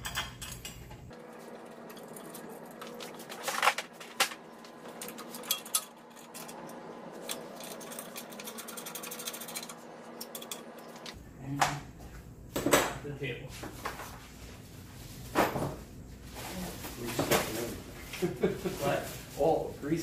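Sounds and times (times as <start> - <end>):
metal tools clicking: 5.0 - 10.9.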